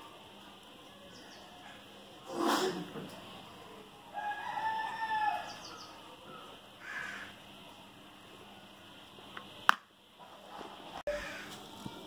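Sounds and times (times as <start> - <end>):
crow cawing: 6.8 - 7.4, 11.1 - 11.6.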